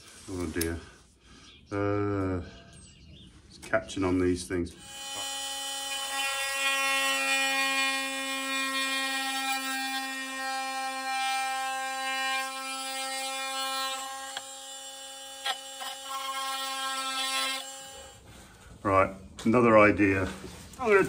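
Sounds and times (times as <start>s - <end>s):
small motor buzzing: 4.8s - 18.2s.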